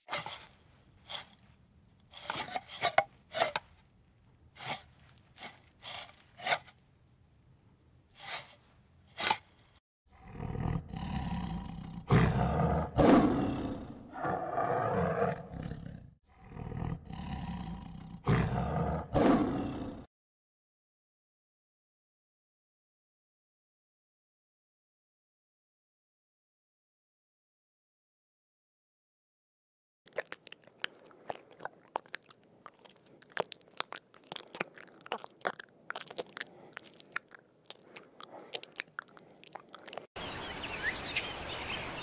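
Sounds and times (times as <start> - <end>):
tiger roaring: 10.1 - 20.1.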